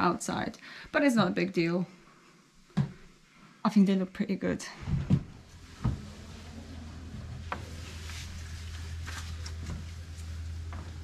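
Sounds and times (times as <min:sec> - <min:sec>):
low steady hum: 0:03.2 - 0:11.0.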